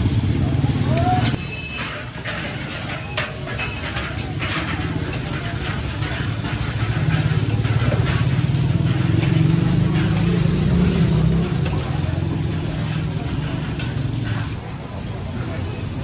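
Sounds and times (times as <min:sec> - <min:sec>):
metal spatula scraping griddle: 0:01.3 - 0:16.0
vehicle engine drone: 0:06.0 - 0:15.5.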